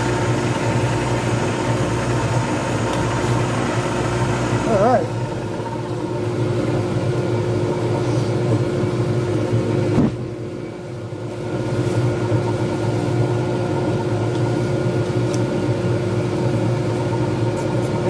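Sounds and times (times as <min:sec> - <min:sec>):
lathe motor humming: 0:00.0 - 0:09.8, 0:10.7 - 0:18.0.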